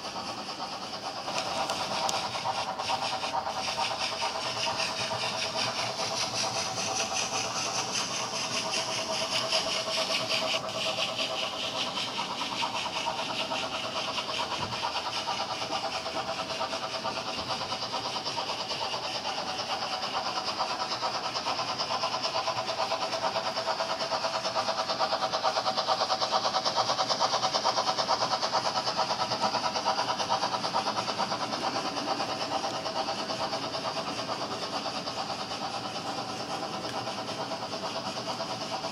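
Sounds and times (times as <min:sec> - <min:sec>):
model train wheels clicking on track: 0:00.0 - 0:38.9.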